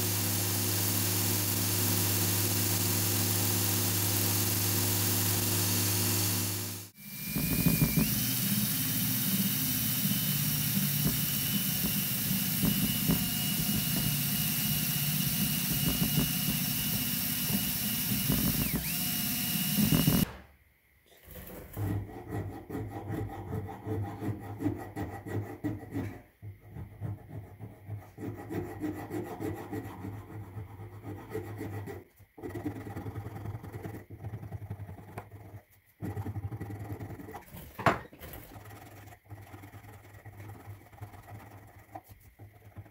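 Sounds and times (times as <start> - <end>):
power tool whining: 0.0 - 20.3.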